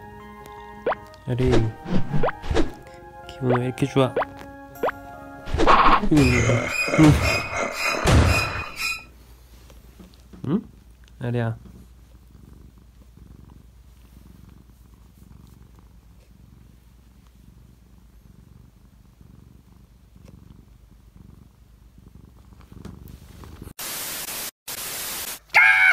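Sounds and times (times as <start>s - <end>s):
cat purring: 9.1s - 23.8s
loud hiss of noise: 23.8s - 25.5s.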